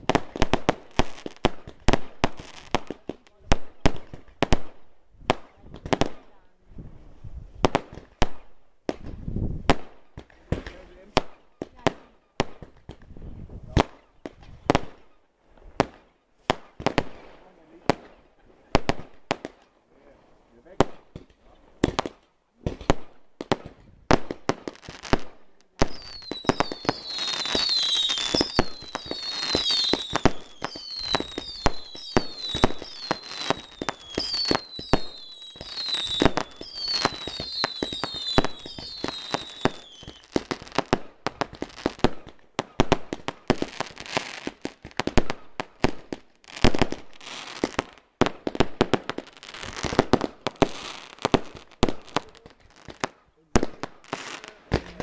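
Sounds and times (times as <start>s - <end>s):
fireworks bangs: 0.0s - 19.7s, 20.5s - 55.0s
falling firework whistles: 25.8s - 40.3s.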